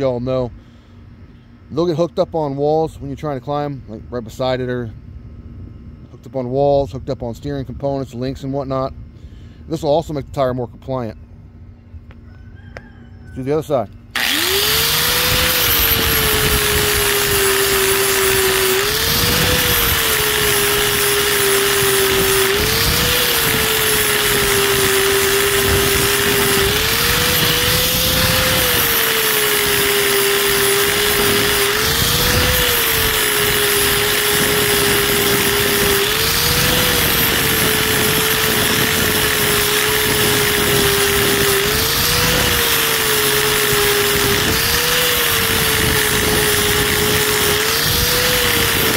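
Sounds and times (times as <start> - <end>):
angle grinder grinding rubber: 14.2 - 48.9.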